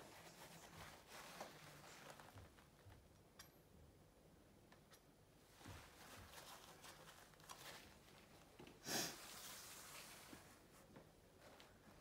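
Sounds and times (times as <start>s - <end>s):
hands rustling tissue and paper: 0.0s - 2.9s, 5.5s - 8.6s, 9.2s - 12.0s.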